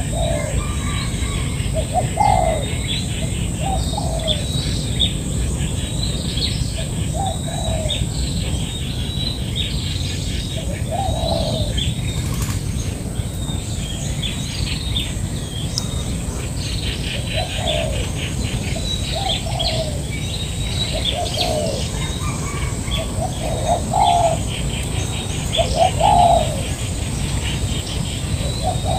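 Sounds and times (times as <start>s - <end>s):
doves cooing: 0.0s - 8.8s, 10.5s - 12.6s, 15.9s - 28.9s
small birds chirping: 0.0s - 28.9s.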